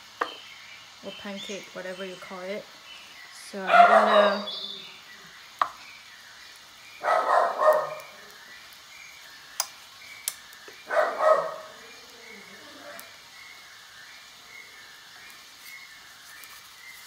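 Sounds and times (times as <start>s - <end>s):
dog barking: 3.7s - 4.5s, 7.0s - 8.1s, 10.9s - 11.8s
sharp clicks: 9.5s - 10.7s.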